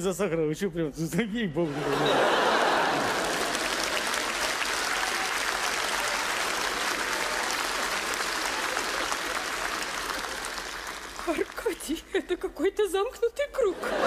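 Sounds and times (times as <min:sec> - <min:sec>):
audience applauding: 0:02.2 - 0:12.0.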